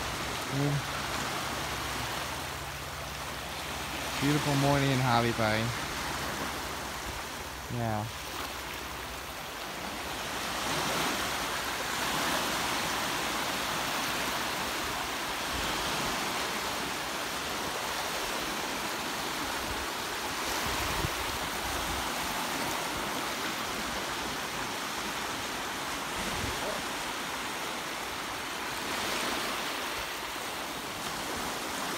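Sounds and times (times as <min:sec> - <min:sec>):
small waves washing up a beach: 0:00.0 - 0:31.9.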